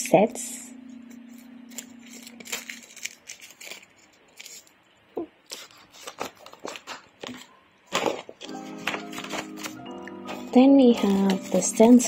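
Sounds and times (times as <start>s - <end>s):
low steady music tone: 0.0s - 4.1s, 8.4s - 12.0s
plastic packets crinkling: 1.7s - 4.8s, 5.4s - 12.0s.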